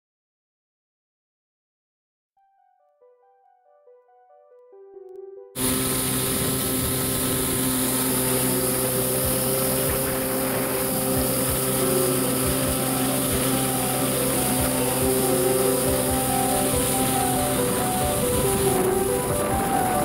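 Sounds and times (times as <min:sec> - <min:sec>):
jet ski engine running: 0:05.6 - 0:20.0
water spray hissing: 0:05.6 - 0:20.0.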